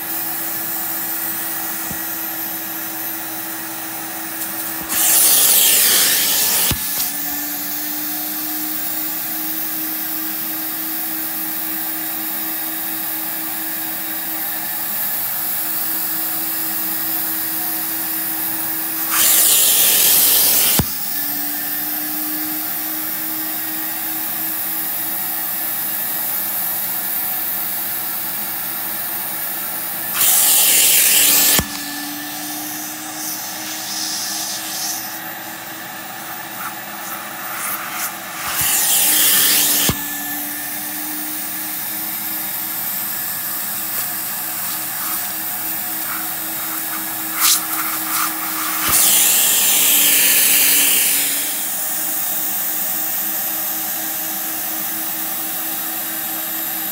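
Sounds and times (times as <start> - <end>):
vacuum motor running: 0.0 - 56.9
loud suction hiss: 4.3 - 7.2, 18.9 - 21.0, 30.1 - 35.6, 36.2 - 41.6, 43.5 - 51.7.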